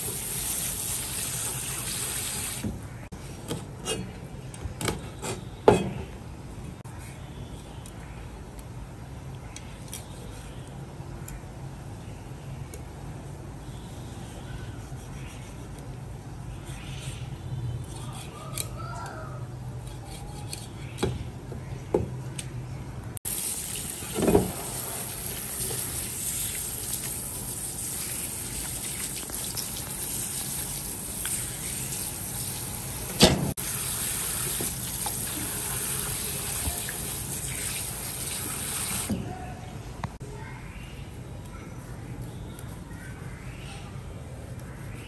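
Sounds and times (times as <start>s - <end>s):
water spray hissing: 0.0s - 2.7s, 23.3s - 39.1s.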